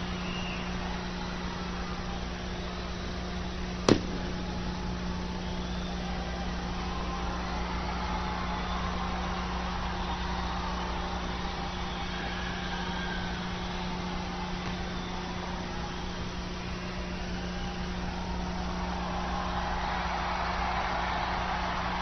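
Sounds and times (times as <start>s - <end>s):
crowd cheering and screaming: 0.0s - 22.0s
low hum: 3.6s - 7.6s.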